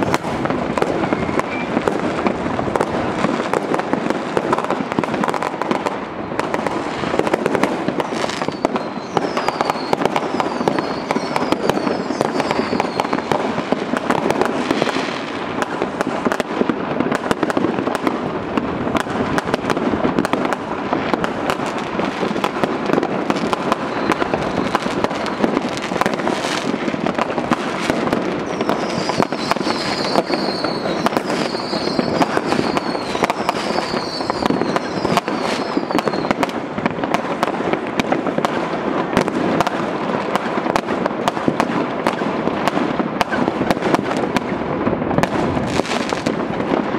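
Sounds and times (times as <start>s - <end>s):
falling firework whistles: 0.0s - 3.6s, 6.2s - 15.4s, 22.9s - 36.6s
fireworks bangs and crackling: 0.0s - 46.9s.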